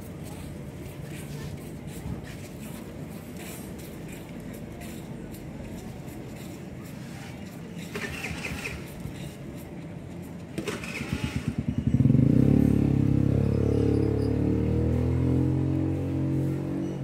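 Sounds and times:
engine starting and running: 0:07.9 - 0:09.0, 0:10.6 - 0:14.8.

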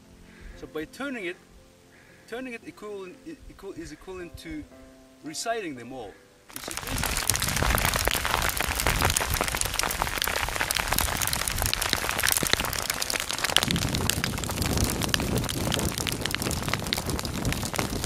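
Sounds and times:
hailstones pelting gravel: 0:06.5 - 0:18.0.

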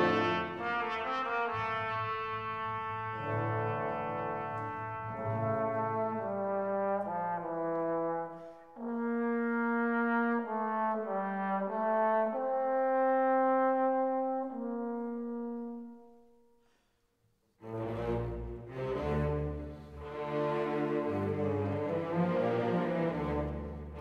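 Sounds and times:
slow brass melody: 0:00.0 - 0:16.7.

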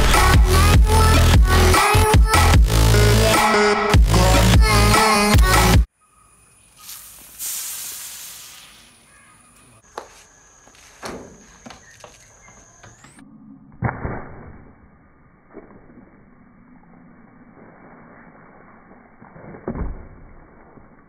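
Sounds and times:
bottle spraying foaming gas: 0:06.8 - 0:08.9.

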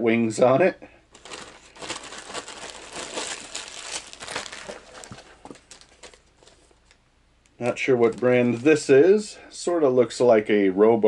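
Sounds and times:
plastic bag crinkling: 0:01.1 - 0:07.0, 0:07.6 - 0:09.0.

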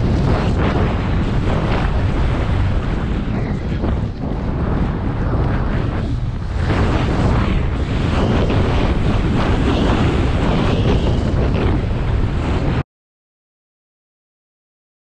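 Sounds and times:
skis scraping through snow: 0:00.0 - 0:11.8
wind buffeting microphone: 0:00.0 - 0:12.8.

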